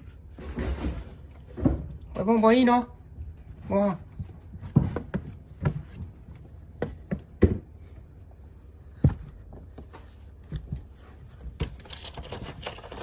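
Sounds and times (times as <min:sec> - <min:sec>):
irregular knocks and thumps: 0:04.1 - 0:08.0, 0:08.9 - 0:11.8.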